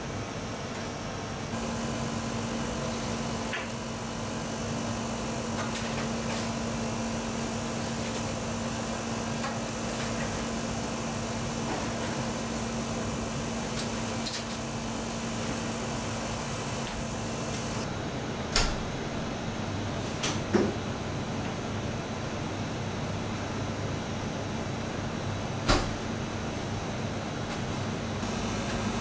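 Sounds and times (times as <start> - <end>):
steady hum: 0.0 - 18.3, 27.9 - 29.0
oven fan whirring: 0.0 - 29.0.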